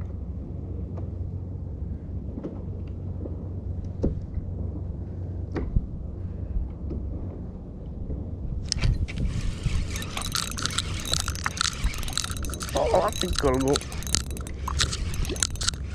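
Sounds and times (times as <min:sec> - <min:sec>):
wind rumbling on microphone: 0:08.3 - 0:15.9.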